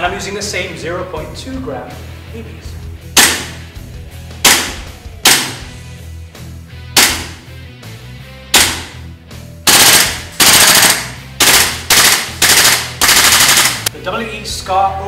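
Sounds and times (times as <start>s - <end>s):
airsoft rifle single shots: 4.5s - 5.7s, 7.0s - 7.5s
airsoft rifle full-auto bursts: 9.7s - 13.9s.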